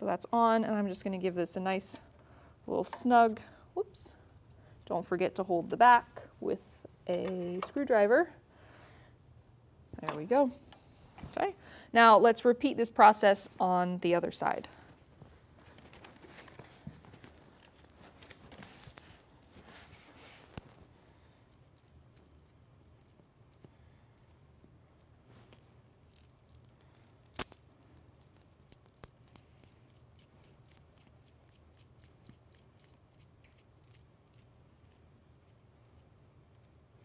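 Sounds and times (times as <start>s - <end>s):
small metal hardware clinking: 26.0s - 36.8s.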